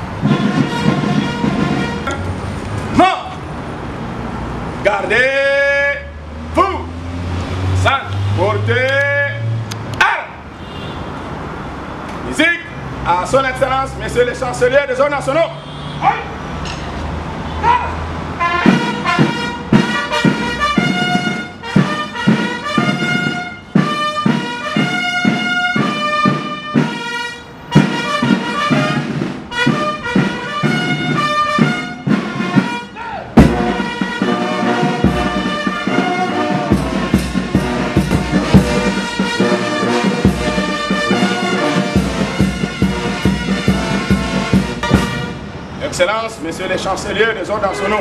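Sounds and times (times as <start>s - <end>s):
brass band playing: 0.0s - 3.3s, 17.6s - 45.8s, 47.5s - 48.0s
sharp drum hit: 33.4s - 34.0s, 42.0s - 45.4s.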